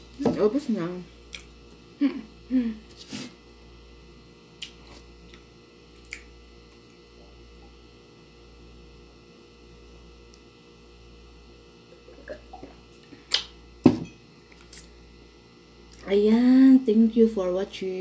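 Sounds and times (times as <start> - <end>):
low room hum: 0.0 - 18.0
woman humming: 2.0 - 2.9
person swallowing water: 11.9 - 12.9.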